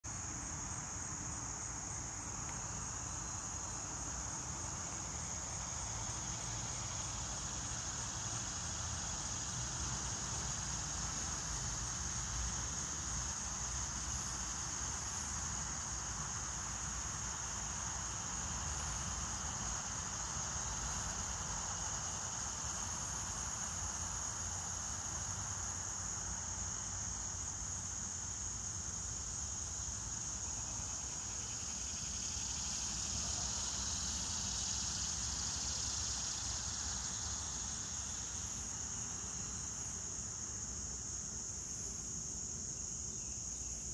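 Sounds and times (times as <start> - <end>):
insect chorus drone: 0.0 - 43.9.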